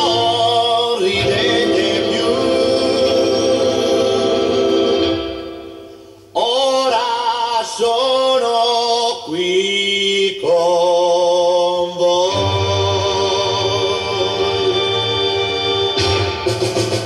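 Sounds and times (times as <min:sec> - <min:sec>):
man singing pop song: 0:00.0 - 0:03.4, 0:06.4 - 0:14.7.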